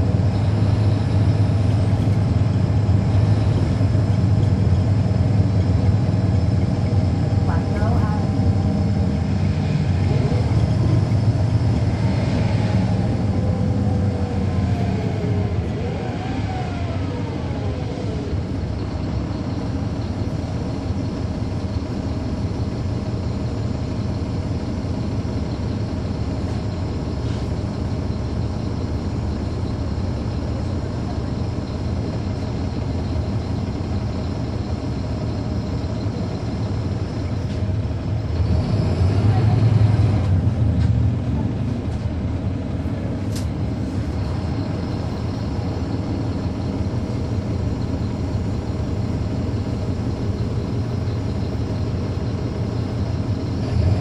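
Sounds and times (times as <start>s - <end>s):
bus engine low drone: 0.0s - 54.0s.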